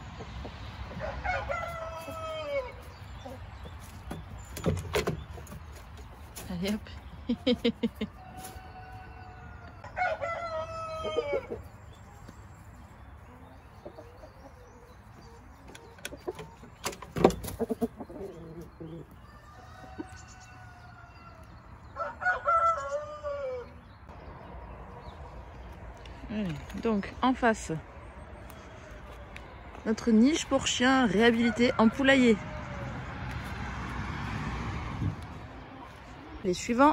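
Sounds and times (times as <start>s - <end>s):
rooster crowing: 0.9s - 2.8s, 8.2s - 11.5s, 19.2s - 23.8s.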